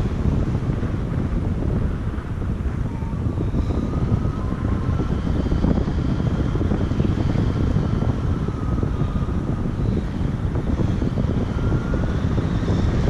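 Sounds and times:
wind rumble on microphone: 0:00.0 - 0:13.0
faint wavering whistle: 0:02.8 - 0:13.0.

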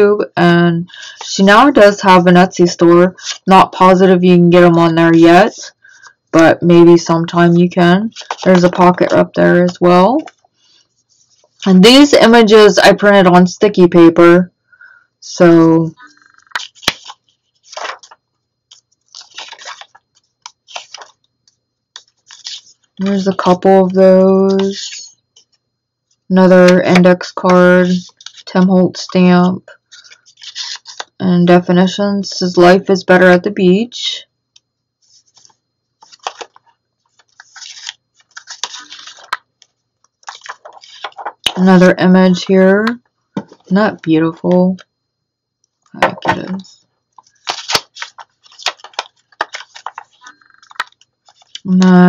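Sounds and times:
paper pages rustling: 0:08.1 - 0:11.7, 0:16.3 - 0:23.6, 0:27.9 - 0:28.5, 0:29.9 - 0:31.1, 0:35.0 - 0:41.6, 0:47.2 - 0:51.8.

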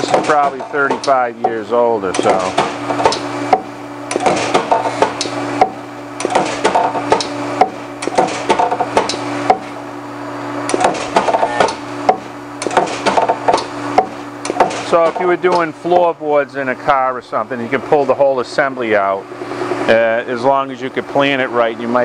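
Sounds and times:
spot welder clacks and snaps: 0:00.0 - 0:01.2, 0:02.1 - 0:09.8, 0:10.7 - 0:15.7
steady low hum: 0:00.0 - 0:22.0.

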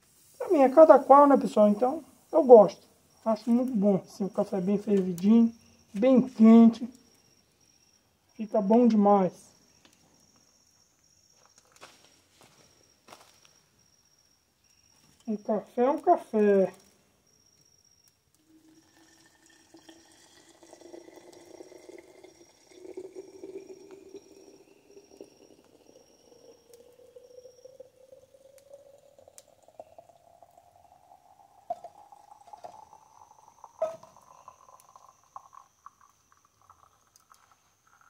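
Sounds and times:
coffee pouring into container: 0:18.4 - 0:38.0.

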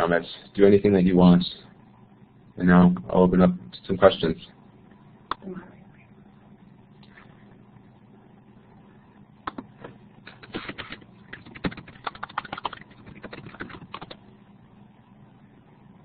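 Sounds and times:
faint steady hum: 0:00.0 - 0:16.0
computer keyboard typing: 0:09.5 - 0:09.7, 0:10.3 - 0:14.2.

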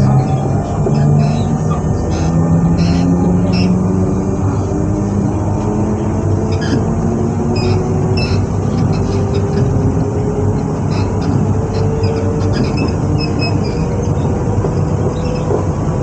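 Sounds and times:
faint drifting tones: 0:00.0 - 0:16.0
train equipment humming: 0:00.0 - 0:16.0.

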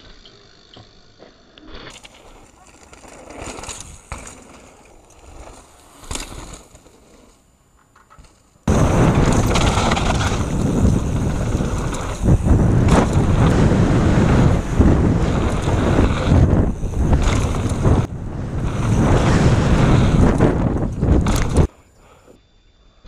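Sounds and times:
bike tyres rumbling over dirt: 0:01.8 - 0:21.7
wind buffeting microphone: 0:08.7 - 0:21.7.

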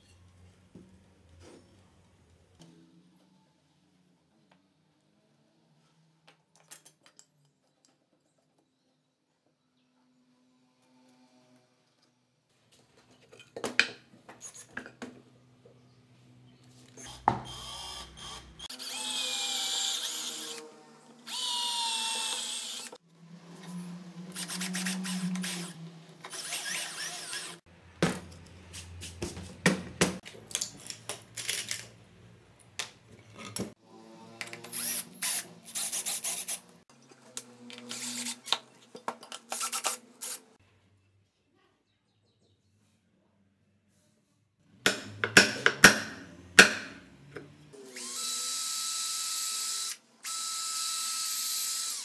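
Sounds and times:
cordless drill boring into wood: 0:17.0 - 0:23.0, 0:24.4 - 0:27.6, 0:34.7 - 0:36.6, 0:37.8 - 0:38.6, 0:47.8 - 0:52.0.

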